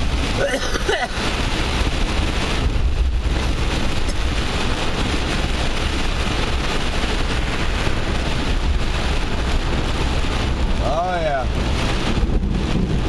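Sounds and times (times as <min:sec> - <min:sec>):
heavy rain on car: 0:00.0 - 0:13.0
road and engine rumble: 0:00.0 - 0:13.0.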